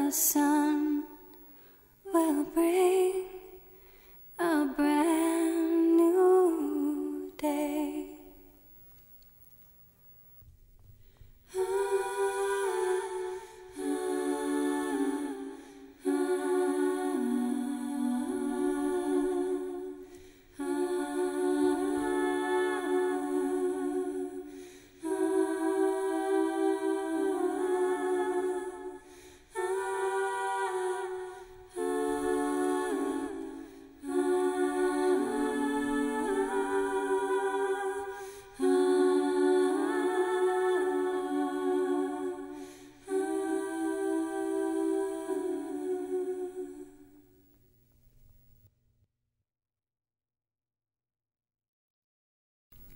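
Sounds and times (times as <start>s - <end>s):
slow wordless lullaby singing: 0.0s - 8.5s.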